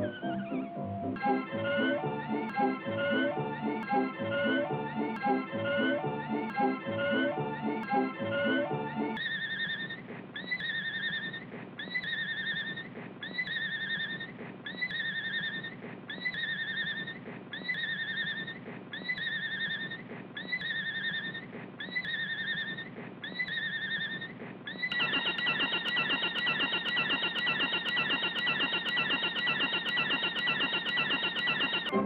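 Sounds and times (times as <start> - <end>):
fast warbling trill with clicks: 24.8 - 32.0.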